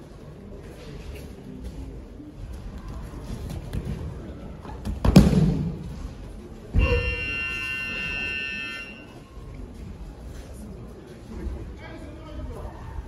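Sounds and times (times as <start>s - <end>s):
ringing tone: 6.8s - 9.2s.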